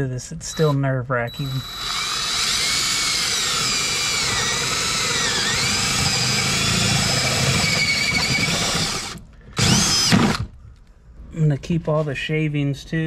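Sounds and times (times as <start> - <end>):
cordless drill motor whine: 1.3 - 10.4
drill bit rasping through plastic: 1.3 - 10.5.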